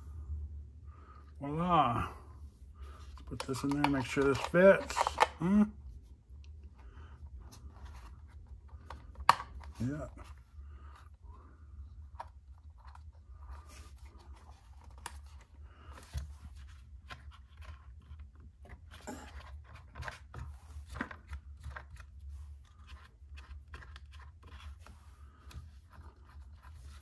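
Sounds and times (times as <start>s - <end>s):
low steady hum: 0.0s - 27.0s
plastic parts clicking and scraping: 2.9s - 5.4s.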